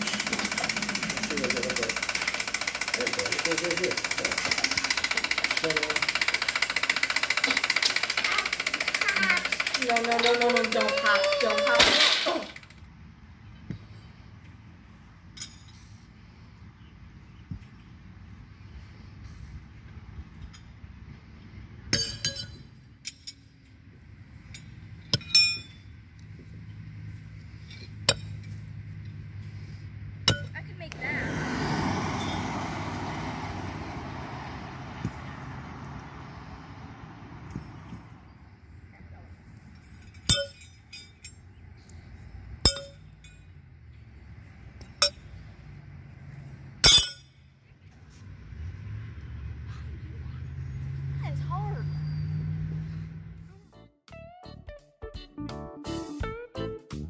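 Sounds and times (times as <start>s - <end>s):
metallic clink on stake: 15.3s - 16.0s, 21.9s - 23.8s, 24.4s - 26.0s, 30.2s - 30.6s, 39.6s - 43.6s, 44.8s - 45.4s, 46.8s - 47.5s.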